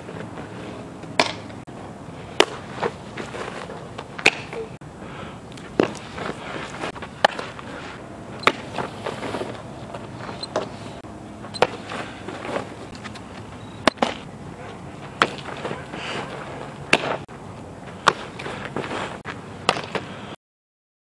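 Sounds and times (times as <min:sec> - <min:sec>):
open-air background noise: 0:00.0 - 0:20.4
balls smacking into gloves: 0:02.4 - 0:03.0, 0:04.0 - 0:04.7, 0:05.6 - 0:06.3, 0:08.4 - 0:08.9, 0:15.2 - 0:17.2.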